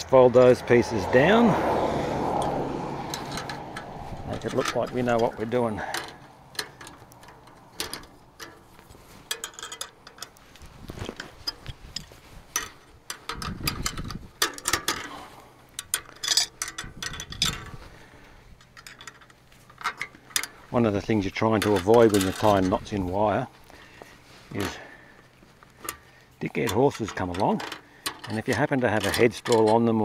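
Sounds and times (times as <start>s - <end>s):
pliers clicking and scraping wire: 2.4s - 17.8s, 21.5s - 23.0s, 25.6s - 30.0s.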